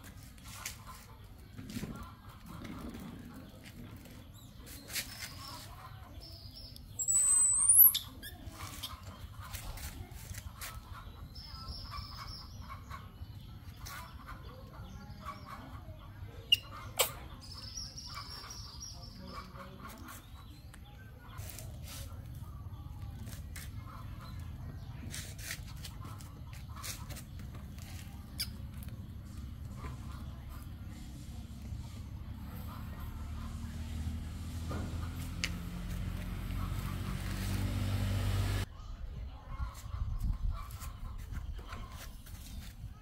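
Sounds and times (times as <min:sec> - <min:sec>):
birds chirping and squawking: 0:00.0 - 0:38.7, 0:39.3 - 0:43.0
high-pitched bird call: 0:07.0 - 0:09.0.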